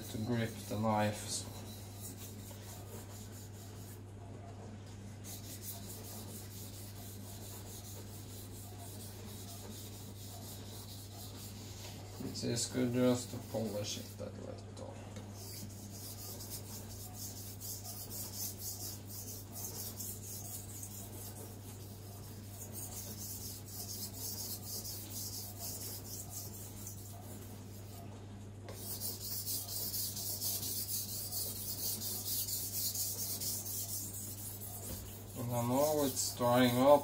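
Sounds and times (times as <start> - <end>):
knife scraping on whetstone: 15.4 - 28.0, 28.7 - 36.2.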